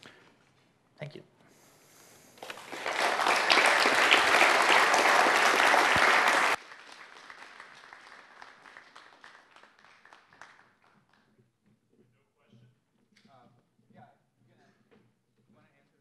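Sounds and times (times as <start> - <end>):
audience applauding: 2.4 - 11.2.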